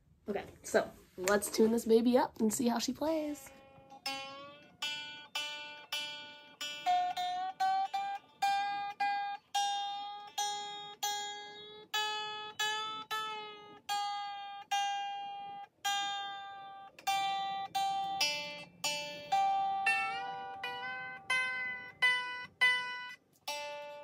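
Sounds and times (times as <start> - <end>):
ukulele string plucked: 3.4 - 24.0.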